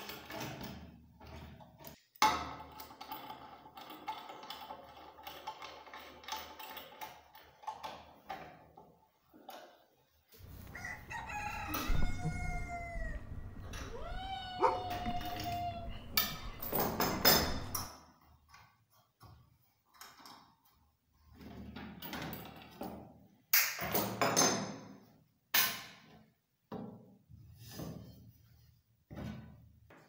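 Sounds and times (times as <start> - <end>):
rooster crowing: 10.4 - 17.8
metal pieces clattering on wood: 15.1 - 17.9.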